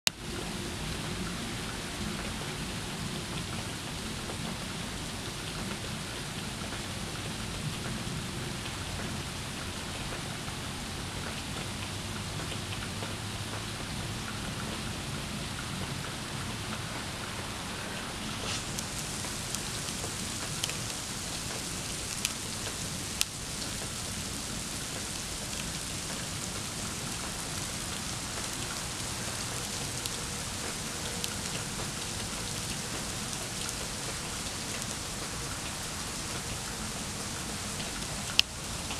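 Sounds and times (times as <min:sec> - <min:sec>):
wet snow falling: 0:16.7 - 0:38.9.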